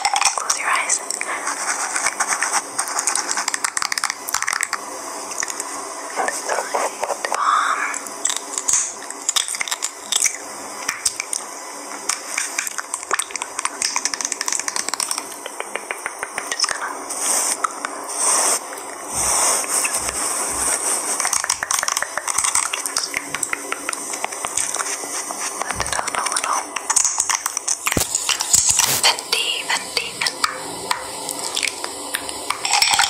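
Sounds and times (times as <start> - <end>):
crunchy crackling and clicking: 1.9 - 5.8, 8.0 - 16.8, 25.6 - 29.1.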